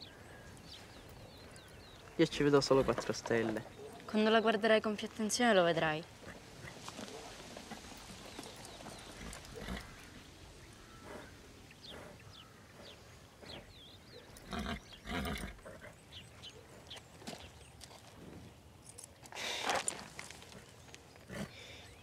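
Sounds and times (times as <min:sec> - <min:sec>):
horse snorting: 0:02.5 - 0:03.8, 0:08.8 - 0:10.2, 0:10.8 - 0:16.0, 0:21.2 - 0:21.8.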